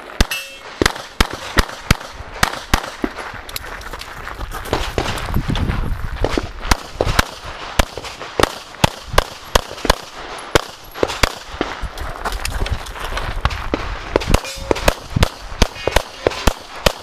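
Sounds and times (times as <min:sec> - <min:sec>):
pistol shots: 0:00.1 - 0:03.2, 0:06.2 - 0:11.7, 0:14.1 - 0:17.0.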